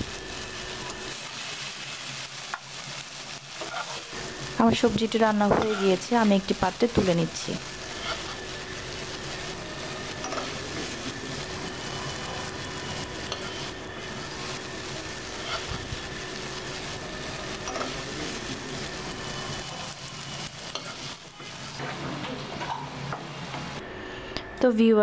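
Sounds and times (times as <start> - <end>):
vegetables sizzling in a pan: 0.0 - 23.8
metal spoon scraping a pan: 3.6 - 4.0, 7.9 - 8.4, 15.3 - 15.8, 20.7 - 21.2.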